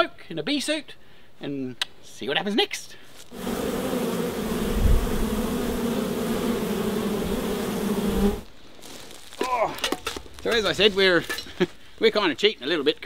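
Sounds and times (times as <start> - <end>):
honey bees buzzing: 3.3 - 8.5.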